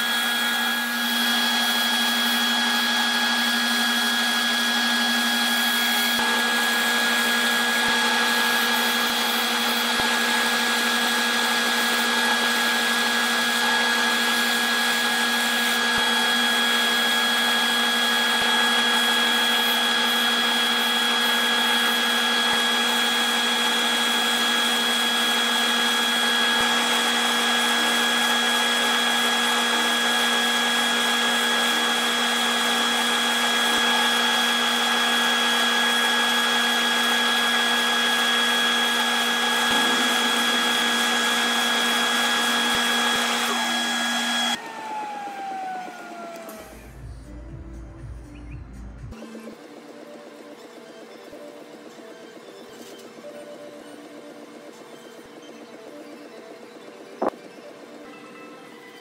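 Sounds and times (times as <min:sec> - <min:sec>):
wood lathe whining: 0:00.0 - 0:47.0.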